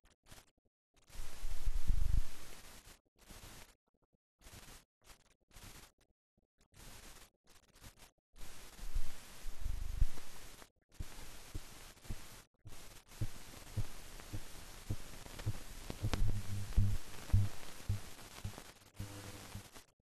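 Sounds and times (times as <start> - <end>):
crackles: 0.0 - 3.8, 4.4 - 20.0
film soundtrack hiss: 1.1 - 3.7, 6.8 - 19.9
low thumps: 15.4 - 18.1.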